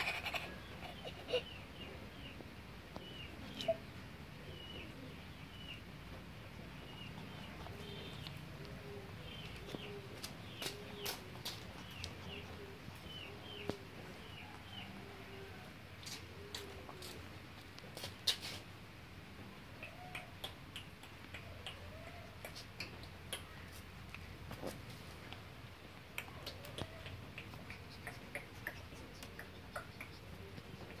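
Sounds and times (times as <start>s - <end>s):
claws scrabbling on concrete: 7.6s - 12.8s.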